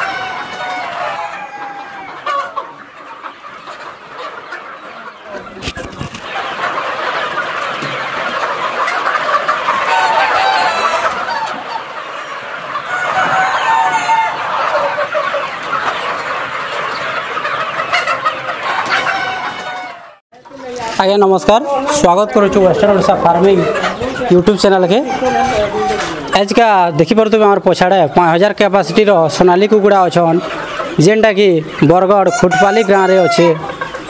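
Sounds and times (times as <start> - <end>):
roosters crowing: 0.0 - 2.8, 6.5 - 11.8, 12.4 - 15.4, 17.9 - 20.2, 31.8 - 33.8
chickens clucking: 0.0 - 34.0.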